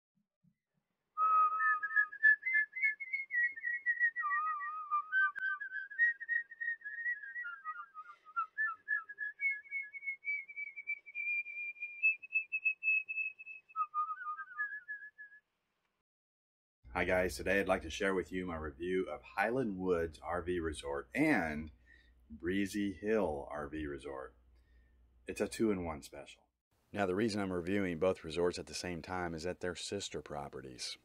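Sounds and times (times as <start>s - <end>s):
person whistling a tune: 1.2s - 15.4s.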